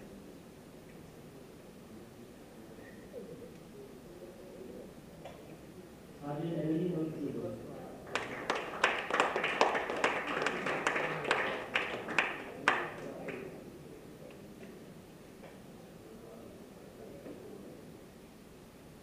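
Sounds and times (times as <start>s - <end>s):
audience applauding: 8.0s - 13.6s
close sharp claps: 8.1s - 13.5s.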